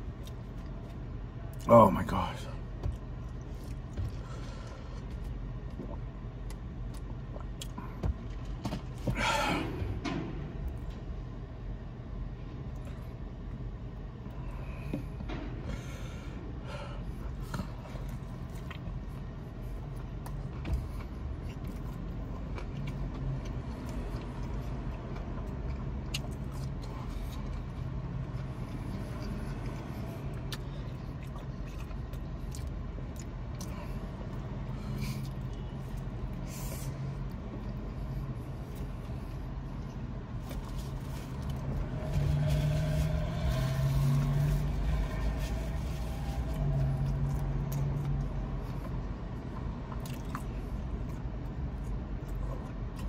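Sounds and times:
chewing and biting crispy food: 17.3s - 36.5s, 37.2s - 53.0s.

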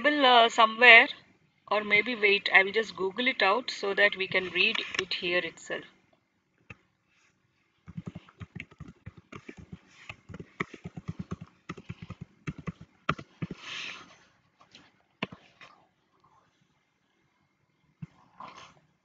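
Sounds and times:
typing on computer keyboard: 7.9s - 13.6s.

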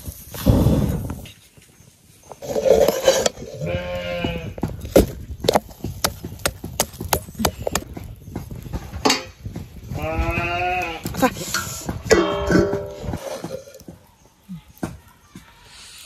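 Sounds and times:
livestock bleat: 3.6s - 4.6s
metal spoon tapping wok: 11.5s - 13.7s.

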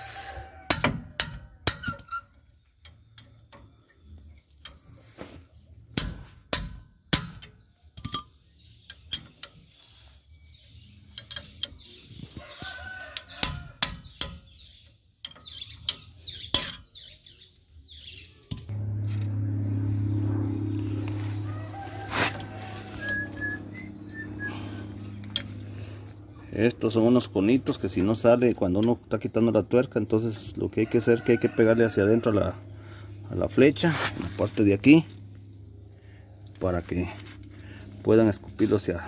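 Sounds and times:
rooster crowing: 0.0s - 1.1s, 12.4s - 13.8s, 19.9s - 25.2s, 30.7s - 32.7s
wrench clinking against nuts: 11.1s - 11.9s.

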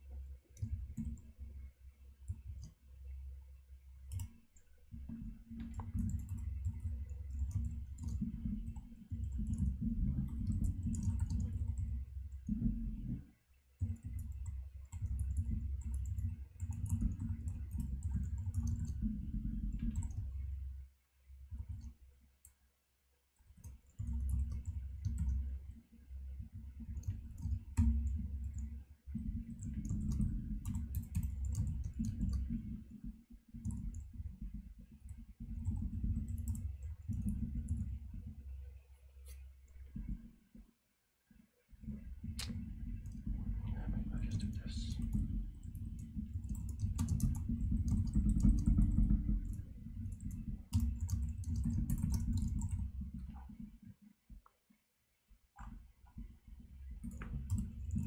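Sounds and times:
computer keyboard typing: 5.6s - 11.9s, 13.8s - 19.0s, 19.7s - 20.2s, 23.6s - 25.4s, 29.6s - 32.6s, 44.2s - 53.2s.

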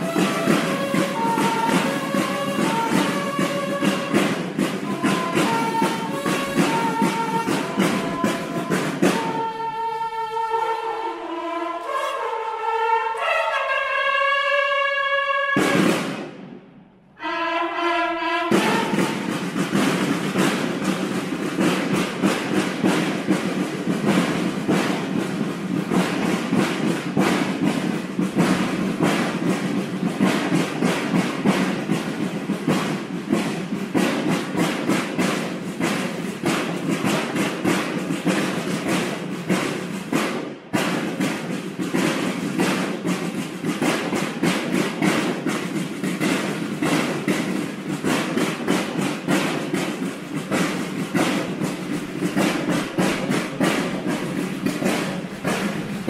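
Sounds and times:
bugles sounding a call: 0.0s - 16.0s
snare drums marching cadence: 0.0s - 56.0s.

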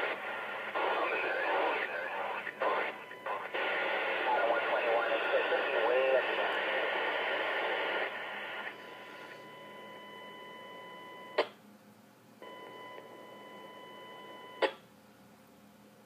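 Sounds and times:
radio beep tone: 0.0s - 11.4s.

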